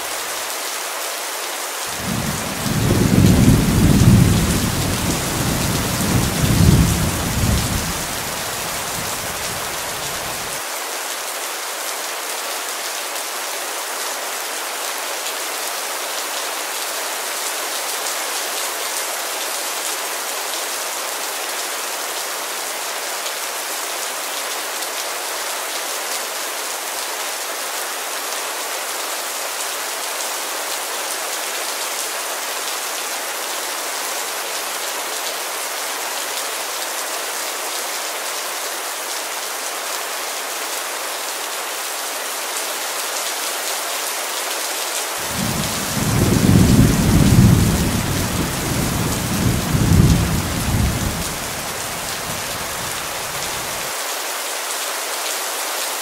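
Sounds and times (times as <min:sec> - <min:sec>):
heavy rain hissing: 0:01.8 - 0:10.7, 0:45.1 - 0:54.0
thunder rumbling: 0:45.3 - 0:53.5.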